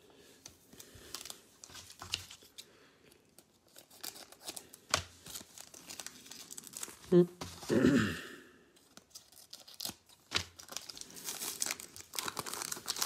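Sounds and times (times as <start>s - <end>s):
foil wrapper crinkling and tearing: 3.4s - 7.2s, 8.8s - 13.0s.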